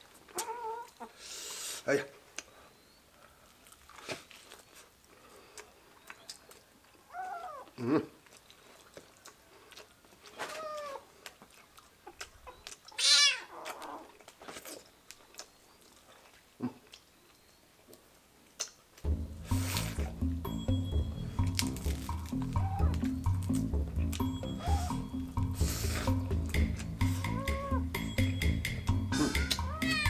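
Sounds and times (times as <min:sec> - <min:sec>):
chewing clicks: 0:05.5 - 0:19.1
kitten meowing: 0:13.0 - 0:13.6, 0:22.6 - 0:23.0, 0:27.2 - 0:27.8, 0:29.1 - 0:30.0.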